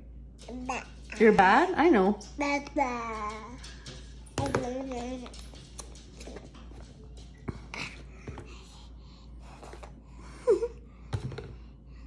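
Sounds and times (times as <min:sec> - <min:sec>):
plastic bowl knocking on tray: 0:04.3 - 0:04.8.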